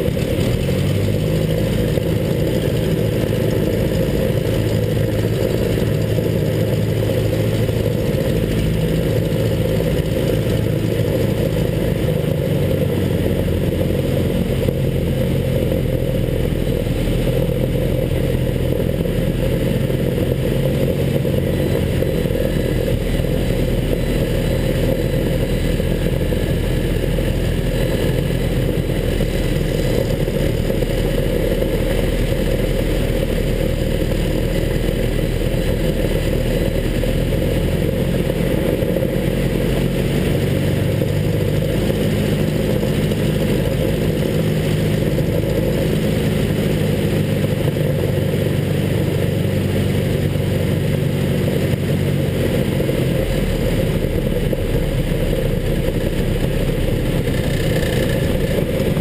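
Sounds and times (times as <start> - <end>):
aircraft engine and propeller: 0.0 - 59.0.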